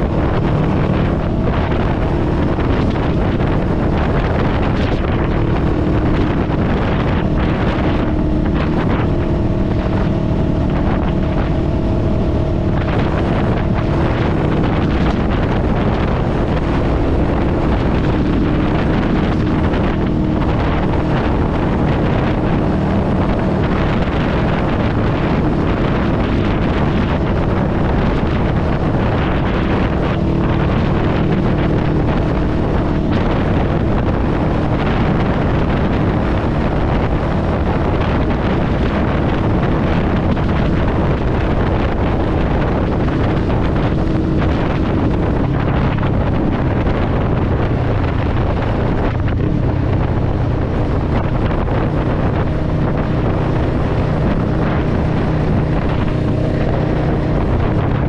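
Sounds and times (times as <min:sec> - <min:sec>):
motorcycle engine running: 0:00.0 - 0:58.0
wind noise on microphone: 0:00.0 - 0:58.0.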